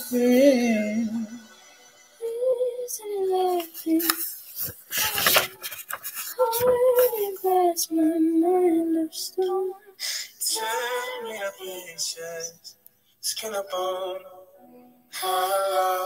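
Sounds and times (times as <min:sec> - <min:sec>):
child singing: 0:02.2 - 0:05.6, 0:06.3 - 0:12.2, 0:15.2 - 0:16.0
brief rustle: 0:03.5 - 0:07.5.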